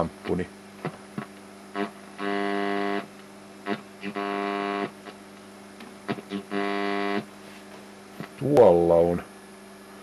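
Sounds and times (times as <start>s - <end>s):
radio interference buzz: 0.0s - 5.3s, 6.0s - 7.5s.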